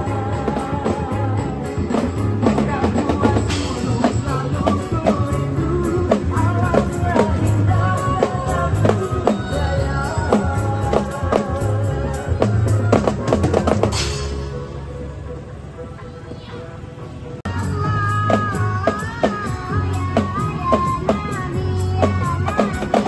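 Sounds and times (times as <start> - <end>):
snare and bass drums: 0.0 - 14.5
music with melody and low beat: 0.0 - 23.0.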